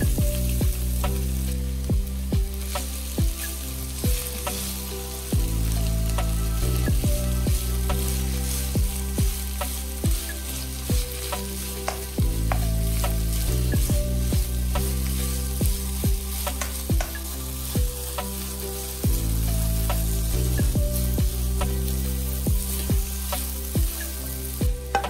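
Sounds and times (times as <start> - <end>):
music with low held notes: 0.0 - 25.0
potato sizzling in oil: 0.0 - 25.0
wooden spoon scraping pan: 2.5 - 25.0.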